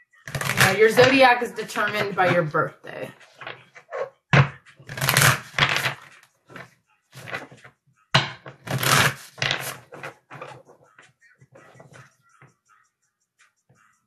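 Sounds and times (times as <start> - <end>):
cards being shuffled: 0.3 - 2.5, 3.2 - 7.6, 8.5 - 10.8
cards rustling: 0.3 - 2.6, 3.2 - 3.9, 4.8 - 7.6, 8.6 - 10.8.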